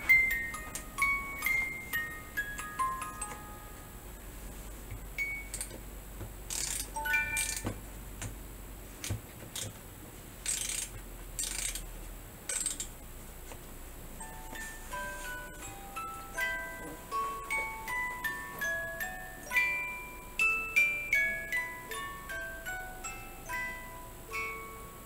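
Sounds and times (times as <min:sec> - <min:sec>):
plucked music box notes: 0:00.0 - 0:04.2, 0:05.2 - 0:05.8, 0:06.8 - 0:07.8, 0:14.2 - 0:25.0
music box mechanism scraping: 0:06.5 - 0:07.6, 0:10.4 - 0:11.9, 0:12.5 - 0:12.9.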